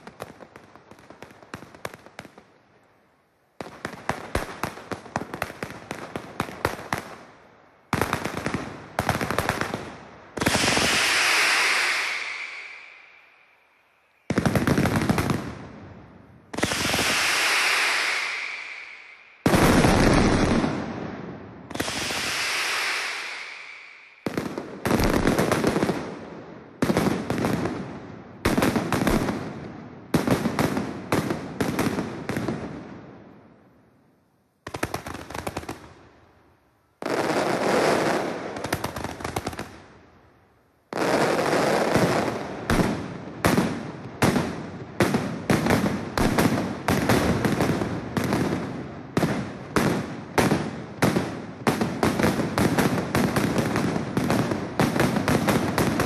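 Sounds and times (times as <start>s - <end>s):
firecrackers banging in volleys: 7.9s - 13.4s, 16.4s - 32.8s, 40.9s - 56.0s.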